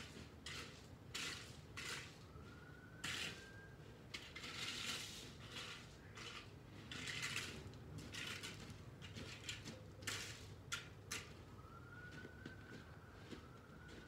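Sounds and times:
gravel crunching and scraping: 4.1 - 11.5.

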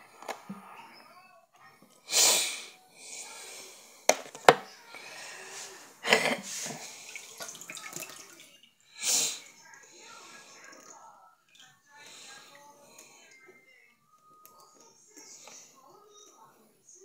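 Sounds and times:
tap water splashing into sink: 7.0 - 8.7.

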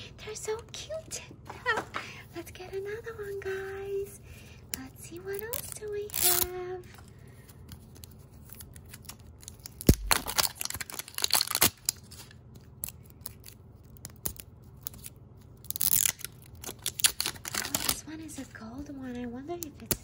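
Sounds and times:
packaging tearing and crinkling: 5.1 - 7.0, 7.6 - 18.4.

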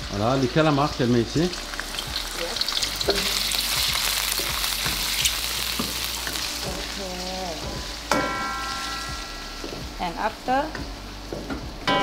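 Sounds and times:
food sizzling in oil: 0.0 - 12.0
metallic clang: 11.5 - 12.0.

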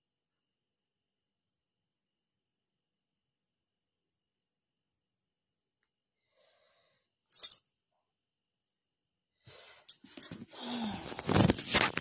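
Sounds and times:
breathing: 6.2 - 7.6, 9.4 - 11.3.

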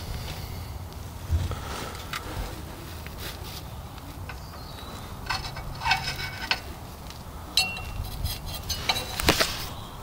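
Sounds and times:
light metallic clinks: 7.5 - 9.2.

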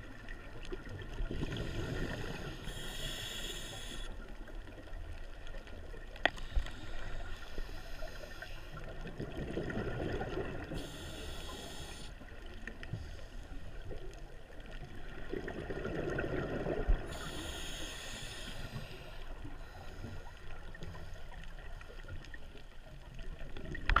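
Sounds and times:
exhaled bubbles gurgling: 0.0 - 6.2, 8.7 - 12.8, 13.6 - 22.3, 23.0 - 24.0
diver breathing through regulator: 1.4 - 4.2, 10.7 - 12.2, 17.0 - 21.3.

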